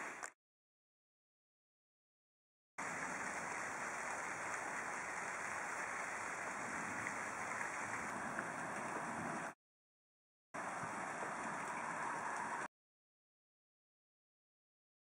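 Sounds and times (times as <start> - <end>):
rain hissing: 2.8 - 9.6.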